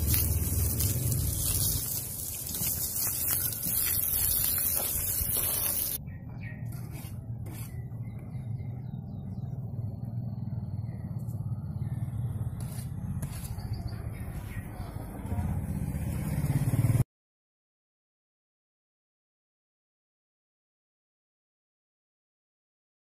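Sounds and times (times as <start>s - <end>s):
hose water spraying on blocks: 0.0s - 6.0s
low outdoor rumble: 0.0s - 17.0s.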